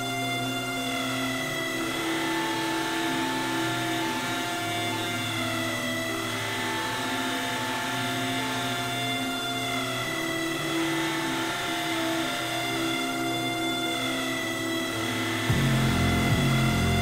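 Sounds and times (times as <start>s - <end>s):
buzzing drone: 0.0s - 17.0s
sustained synth tones: 9.8s - 17.0s.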